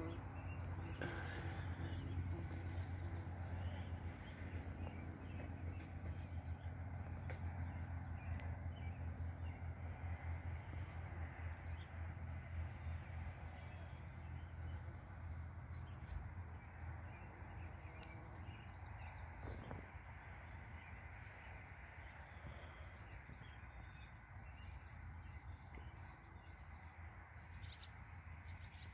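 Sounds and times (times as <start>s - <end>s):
faint bird calls: 0.0s - 6.2s.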